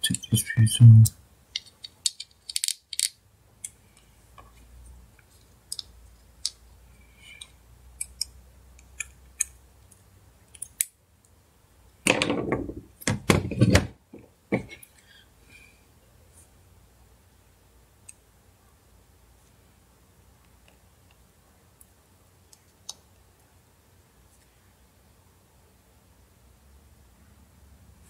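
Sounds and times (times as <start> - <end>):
parts clattering on table: 12.1 - 13.9.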